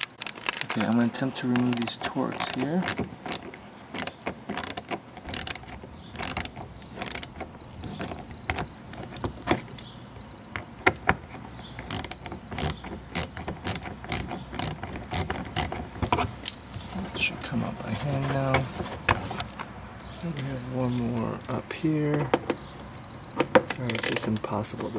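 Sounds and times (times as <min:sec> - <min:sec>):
hand ratchet clicking: 0:01.6 - 0:08.3, 0:11.8 - 0:15.8, 0:23.7 - 0:24.4.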